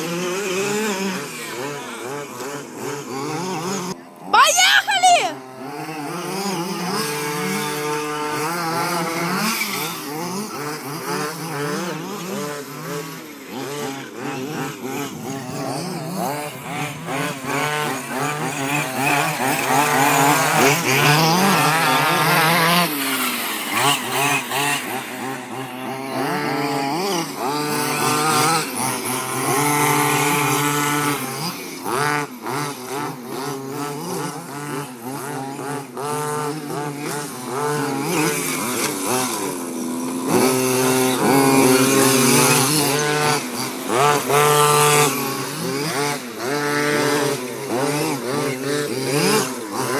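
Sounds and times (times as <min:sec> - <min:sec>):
small two-stroke engines revving: 0:00.0 - 0:49.9.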